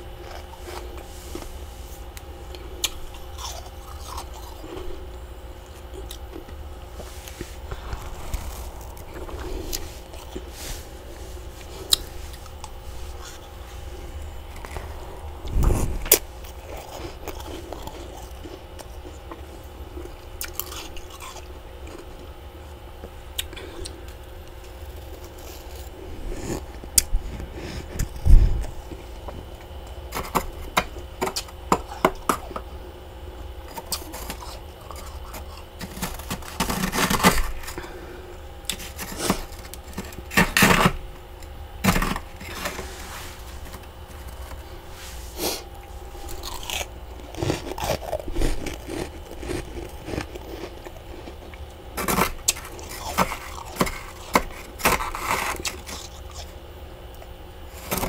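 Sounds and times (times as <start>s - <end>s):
hand scraper scraping freezer frost: 33.7s - 37.9s, 38.7s - 41.0s, 41.8s - 46.7s, 52.0s - 56.5s, 57.7s - 58.0s.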